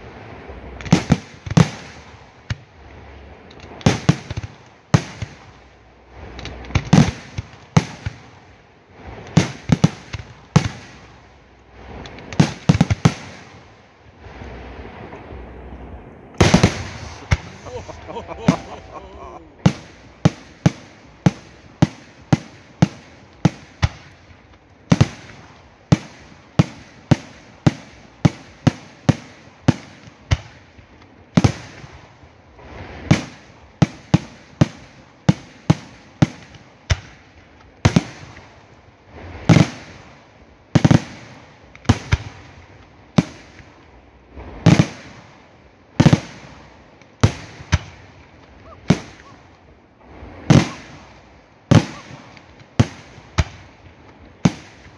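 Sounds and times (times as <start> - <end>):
fireworks bangs: 0.7 - 2.7, 3.6 - 30.6, 39.2 - 40.1, 40.7 - 45.4, 46.0 - 54.9
fireworks booms rumbling: 3.6 - 37.2, 46.0 - 54.9.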